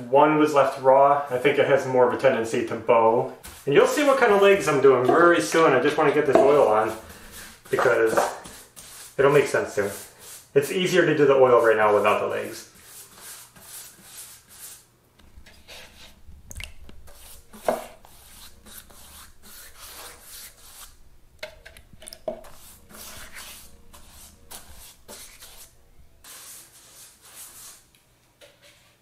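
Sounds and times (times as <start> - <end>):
paintbrush scrubbing wood: 3.4 - 14.8, 15.4 - 16.2, 17.0 - 21.0, 22.1 - 27.8.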